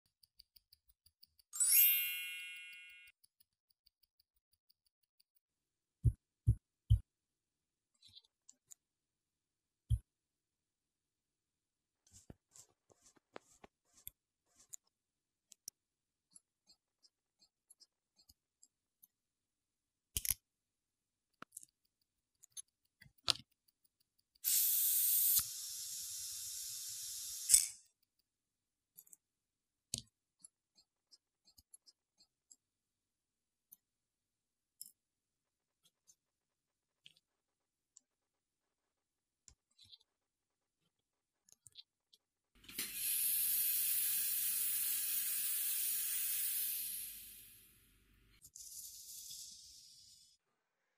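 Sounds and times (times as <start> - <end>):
faint small clicks: 20.1 - 20.5, 21.3 - 24.5, 28.9 - 29.3
air nozzle loud hiss: 24.5 - 27.5, 42.7 - 47.6.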